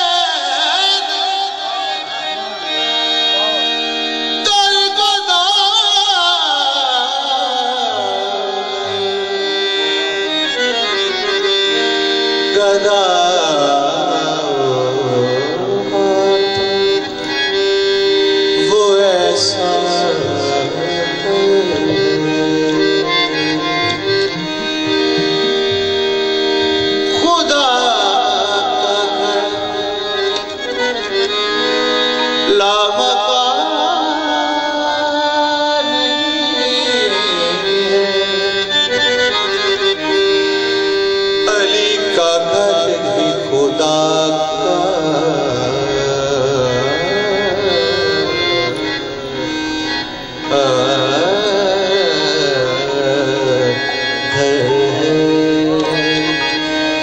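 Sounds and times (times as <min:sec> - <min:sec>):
harmonium tones: 0:00.0 - 0:57.0
man singing devotional song: 0:00.0 - 0:57.0
tabla: 0:00.0 - 0:57.0.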